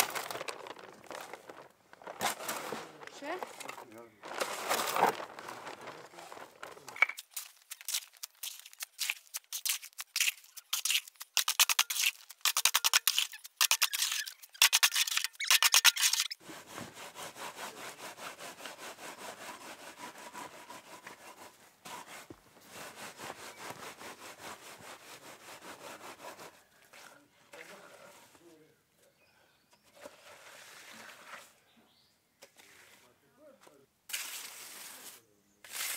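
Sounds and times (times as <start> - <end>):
shovel scraping wet concrete: 1.1 - 16.4, 30.0 - 31.6, 32.5 - 33.1, 34.1 - 35.9
wooden board rubbing wet concrete: 29.9 - 31.6, 34.1 - 35.9.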